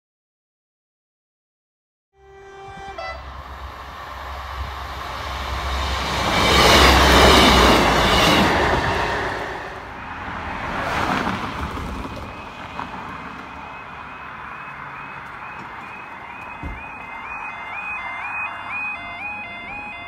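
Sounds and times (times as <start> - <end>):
train wheels on rail: 2.6 - 17.8
diesel engine rumble: 2.7 - 8.1, 8.7 - 20.0.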